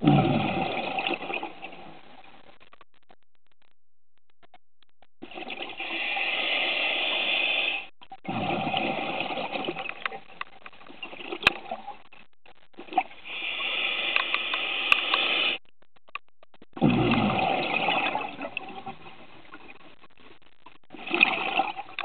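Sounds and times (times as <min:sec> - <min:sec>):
bubbling exhaust: 0:05.2 - 0:10.1, 0:16.7 - 0:19.2
diver breathing through regulator: 0:13.2 - 0:15.6
sharp clicks: 0:14.1 - 0:17.2.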